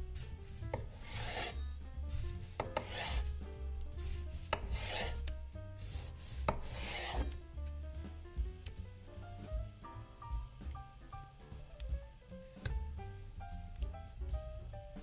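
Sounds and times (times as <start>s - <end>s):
knife slicing tomato: 0.0s - 7.4s
blade tapping cutting board: 0.7s - 1.6s, 2.6s - 3.3s, 4.5s - 5.4s, 6.4s - 7.4s.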